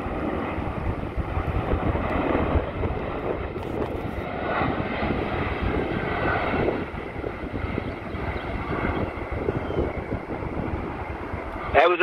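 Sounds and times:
engine whine: 0:00.0 - 0:12.0
jet engines roaring overhead: 0:00.0 - 0:12.0.

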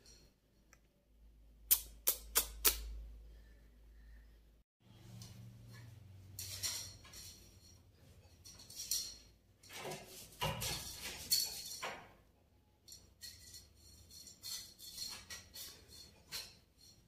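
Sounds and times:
hair band clinking on tiled floor: 0:05.2 - 0:12.1, 0:12.8 - 0:17.0.

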